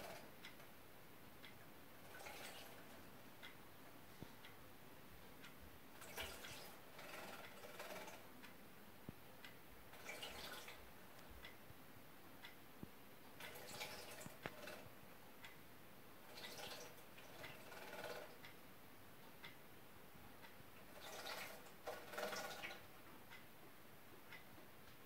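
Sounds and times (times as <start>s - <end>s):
light ticks: 0.0s - 0.8s, 1.4s - 2.8s, 5.3s - 15.6s, 16.4s - 18.6s, 19.2s - 19.6s, 20.4s - 23.5s, 24.2s - 25.0s.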